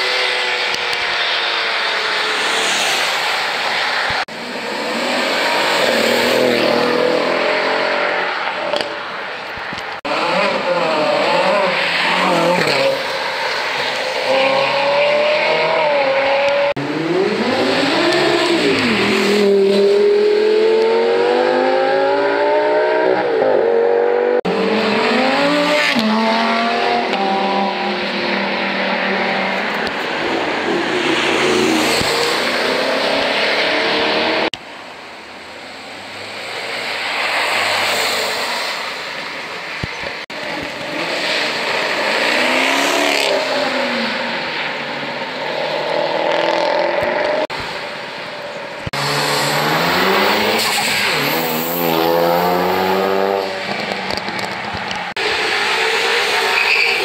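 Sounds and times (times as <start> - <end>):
sports cars accelerating past: 48.9 - 57.0.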